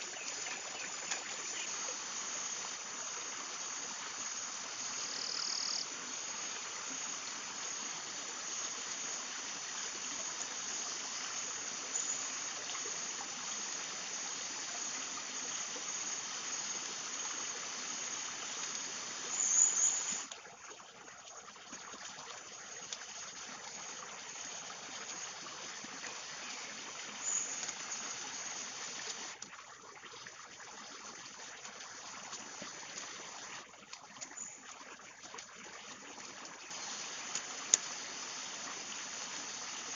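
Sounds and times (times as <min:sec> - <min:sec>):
high insect hiss: 0:00.0 - 0:20.3, 0:22.5 - 0:29.4, 0:36.7 - 0:39.9.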